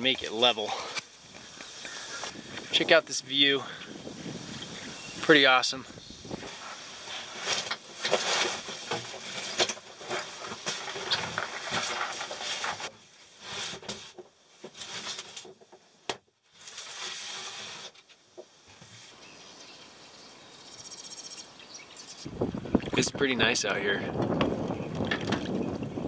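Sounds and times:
rustling and shuffling in a trailer: 0.0s - 19.2s
faint outdoor hiss: 0.0s - 26.0s.

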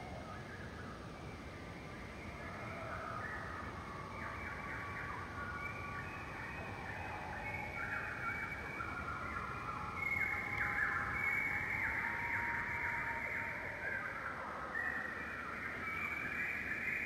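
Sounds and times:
flock of birds chirping: 0.0s - 17.0s.

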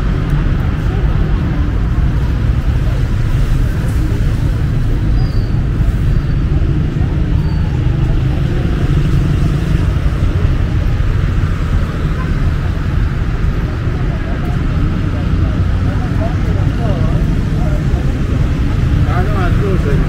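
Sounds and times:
road traffic rumble: 0.0s - 20.0s.

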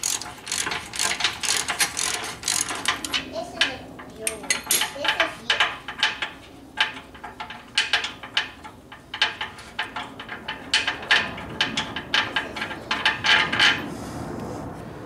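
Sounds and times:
socket ratchet clicking: 0.0s - 3.2s.

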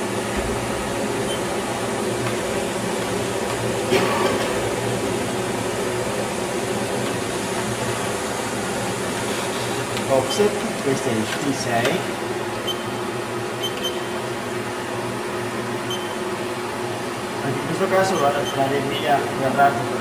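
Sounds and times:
milling machine humming: 0.0s - 20.0s.

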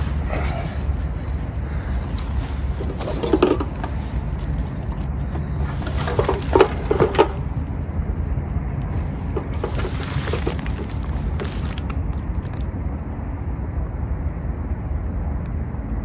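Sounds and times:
water splashing: 0.0s - 12.6s
steady low rumble: 0.0s - 16.0s.

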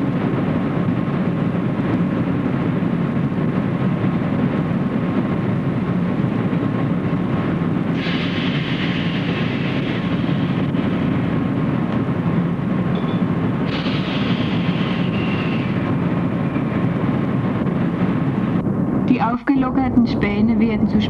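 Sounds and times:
machinery low rumble: 0.0s - 21.0s
high hiss: 8.0s - 11.2s, 13.6s - 16.4s
faint constant tone: 10.0s - 21.0s.

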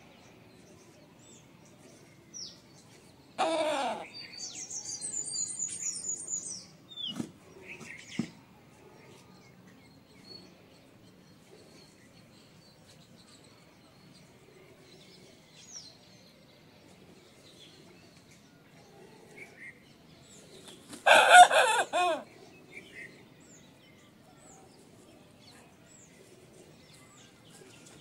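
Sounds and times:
rooster crowing: 21.0s - 22.2s.

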